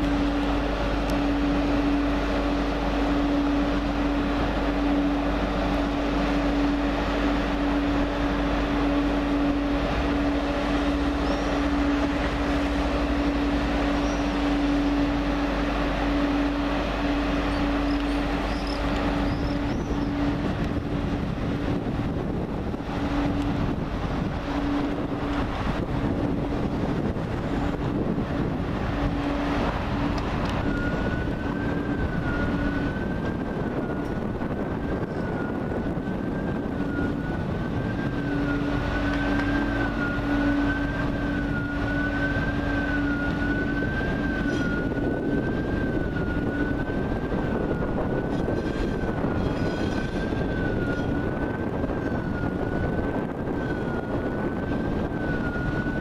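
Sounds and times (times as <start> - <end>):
high wavering whine: 0.0 - 56.0
low hum: 0.0 - 56.0
train rumbling over points: 0.0 - 56.0.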